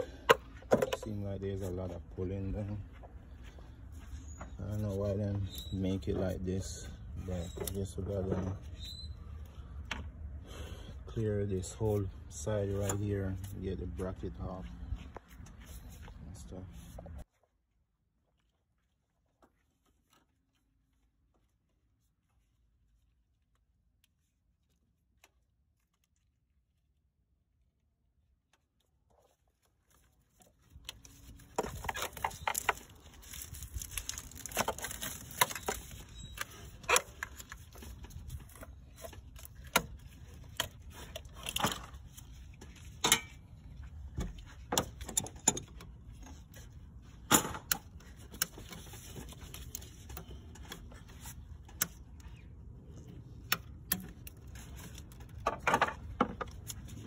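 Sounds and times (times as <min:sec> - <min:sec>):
hand tools and parts clinking: 0:00.0 - 0:01.7, 0:30.7 - 0:57.0.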